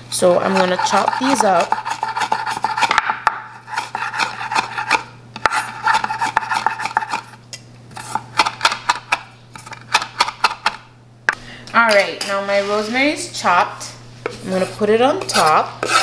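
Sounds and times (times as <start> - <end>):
knife chopping on wooden board: 0.8 - 7.2.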